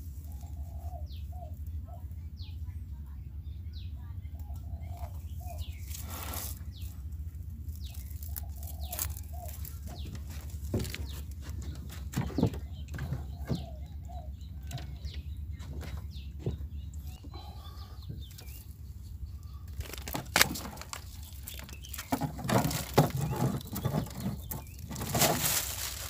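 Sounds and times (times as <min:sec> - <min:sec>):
steady low rumble: 0:00.0 - 0:22.1
crab trap rattling and knocking: 0:19.8 - 0:25.6.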